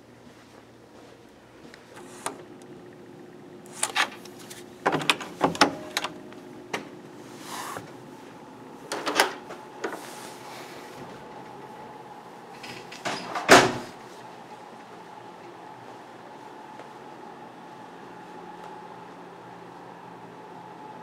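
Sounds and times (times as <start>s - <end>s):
door lock clicks and clunks: 4.8s - 6.2s.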